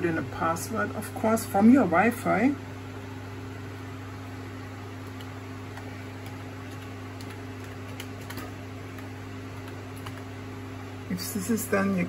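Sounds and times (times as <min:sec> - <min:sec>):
steady low hum: 0:00.0 - 0:12.0
computer keyboard typing: 0:05.0 - 0:10.3.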